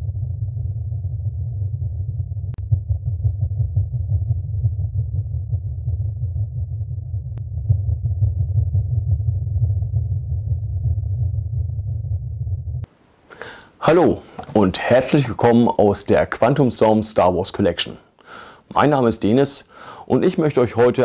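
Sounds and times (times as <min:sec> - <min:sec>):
deep muffled rumble: 0:00.0 - 0:12.9.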